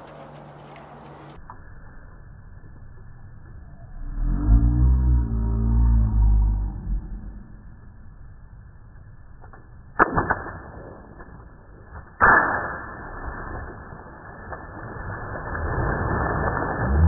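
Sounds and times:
water splashing: 13.1s - 17.0s.

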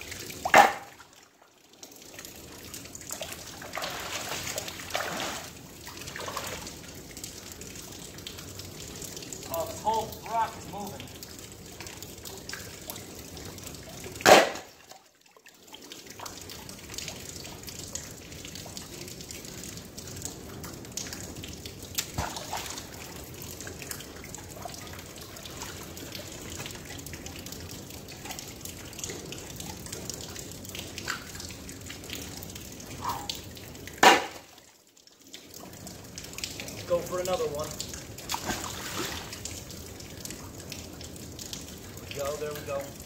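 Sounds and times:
small drips and clinks: 0.0s - 43.0s
water trickling: 0.0s - 43.0s
magnet splashing into river: 14.2s - 14.8s, 34.0s - 34.5s.

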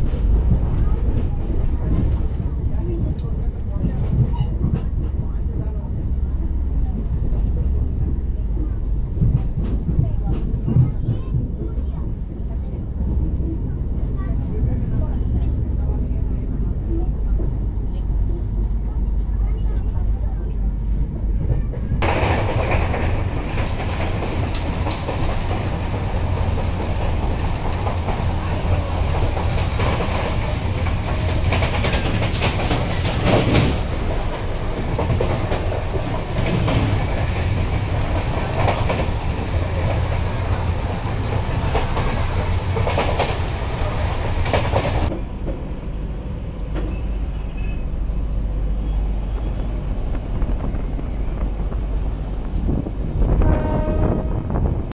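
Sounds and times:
train coach rushing rumble: 0.0s - 54.9s
wheels clacking on rail joints: 21.4s - 45.7s.

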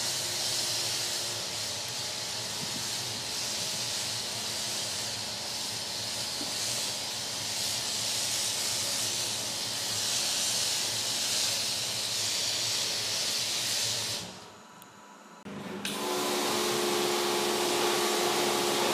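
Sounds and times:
pressure washer spraying: 0.0s - 14.4s, 15.9s - 18.9s.

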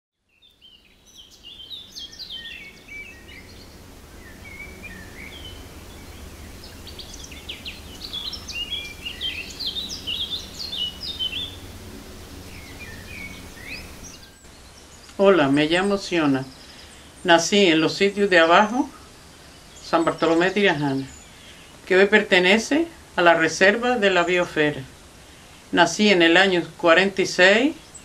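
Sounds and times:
birds chirping and singing: 0.3s - 22.5s
low background rumble: 1.0s - 17.7s.

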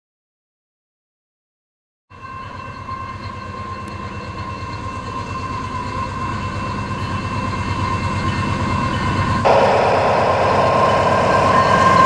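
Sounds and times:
diesel locomotive rumble: 9.5s - 12.0s
steady high tone: 9.5s - 12.0s.

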